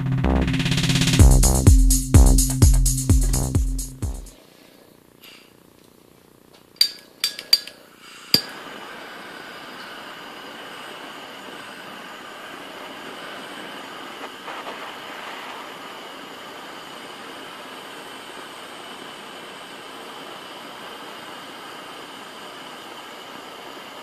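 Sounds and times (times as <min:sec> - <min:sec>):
torch flame hissing: 0:08.0 - 0:24.0.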